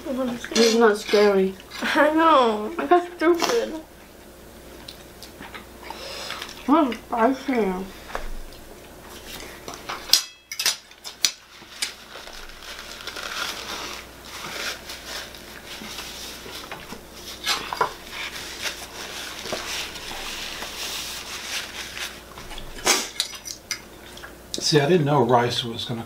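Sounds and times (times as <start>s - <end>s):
forks clinking on plates: 0.5s - 1.3s, 10.1s - 11.4s.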